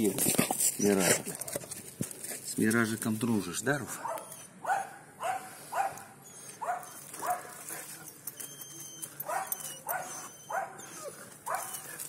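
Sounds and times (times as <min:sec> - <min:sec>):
dog yapping: 0:04.0 - 0:07.6, 0:08.3 - 0:12.0.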